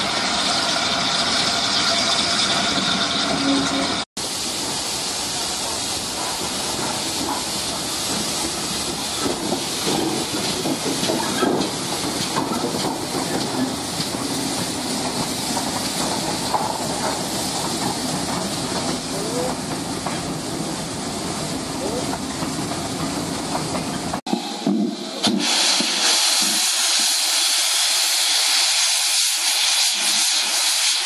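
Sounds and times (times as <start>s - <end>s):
steam hissing: 0.0s - 31.0s
train wheels knocking on rails: 5.6s - 20.4s.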